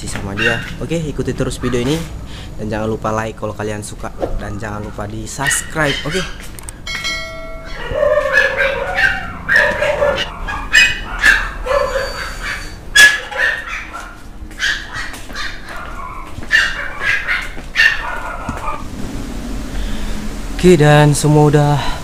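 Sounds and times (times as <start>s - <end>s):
dogs barking and yipping: 0.2s - 2.2s, 4.1s - 19.1s.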